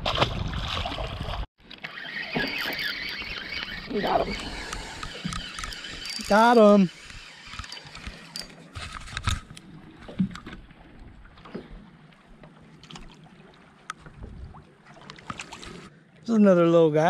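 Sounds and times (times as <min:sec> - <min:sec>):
fishing reel clicks and knocks: 0:02.5 - 0:09.6.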